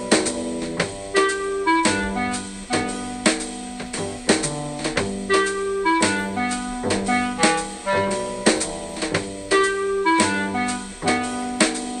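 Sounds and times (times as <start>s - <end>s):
melody of held notes: 0.0s - 12.0s
steady drum beat: 0.0s - 12.0s.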